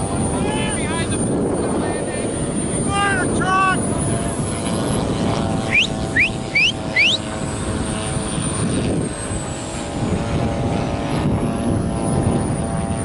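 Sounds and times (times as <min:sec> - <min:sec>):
model airplane engine drone: 0:00.0 - 0:13.0
short rising chirps: 0:05.7 - 0:07.2.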